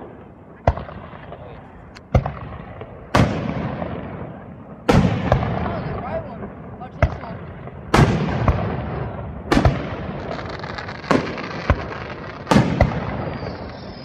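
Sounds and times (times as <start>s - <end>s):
firework shells booming: 0.0s - 14.0s.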